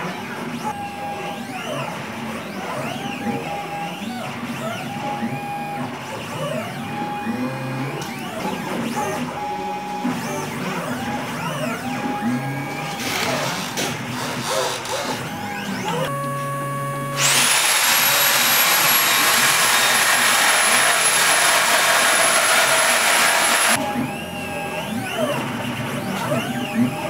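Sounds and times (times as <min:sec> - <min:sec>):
milling machine spindle whine: 0:00.6 - 0:27.0.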